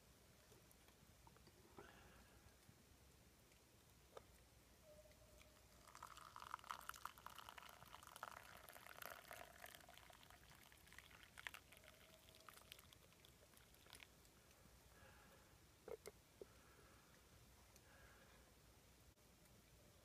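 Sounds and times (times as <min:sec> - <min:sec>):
coffee trickling into a cup: 0:05.4 - 0:14.1.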